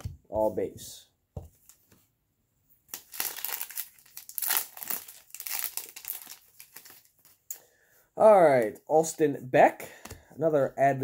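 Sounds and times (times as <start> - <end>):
foil wrapper tearing and crinkling: 2.9 - 7.3.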